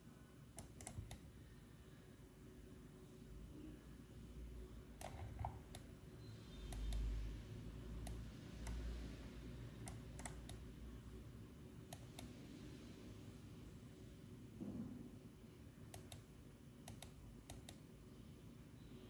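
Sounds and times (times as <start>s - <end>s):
mouse and keyboard clicks: 0.6s - 1.2s, 5.0s - 5.9s, 9.8s - 10.6s, 16.8s - 17.8s.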